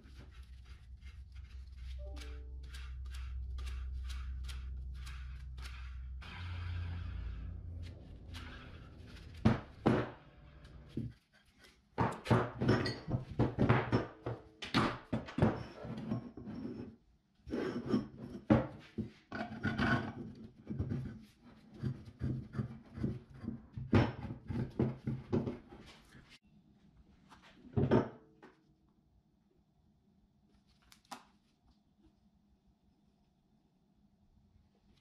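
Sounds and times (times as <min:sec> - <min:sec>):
pipes and wood parts knocking: 0:09.3 - 0:11.1, 0:12.0 - 0:16.3.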